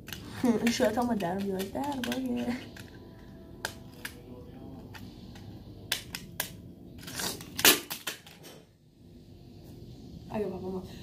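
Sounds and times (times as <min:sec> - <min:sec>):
small hard objects clicking: 0:00.0 - 0:03.0.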